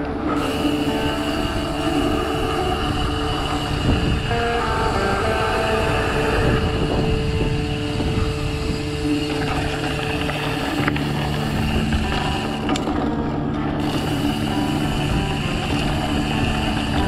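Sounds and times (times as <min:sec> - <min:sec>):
bike tyres rolling on path: 0:00.0 - 0:17.0
wind noise on microphone: 0:00.0 - 0:17.0.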